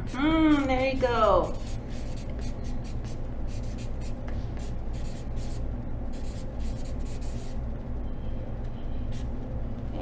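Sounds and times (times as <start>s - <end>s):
steady low hum: 0.0s - 10.0s
marker scratching on paper: 0.1s - 7.6s.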